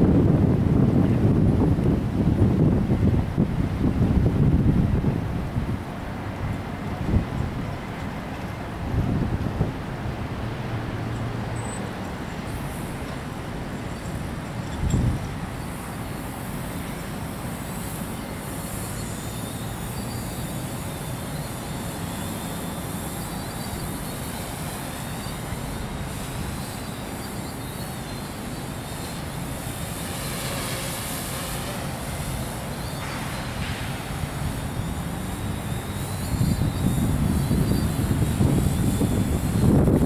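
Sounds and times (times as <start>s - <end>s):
wind buffeting microphone: 0.0s - 18.0s, 28.9s - 40.0s
quadcopter motors whining: 16.6s - 40.0s.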